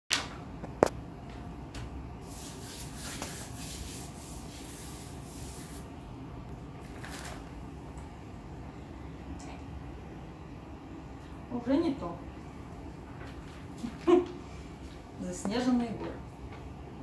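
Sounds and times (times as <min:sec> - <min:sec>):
hand rubbing paper: 0:02.3 - 0:05.9.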